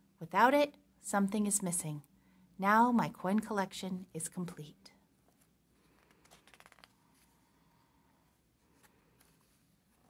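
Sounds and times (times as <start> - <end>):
book page turning: 5.3 - 7.4, 8.7 - 10.0.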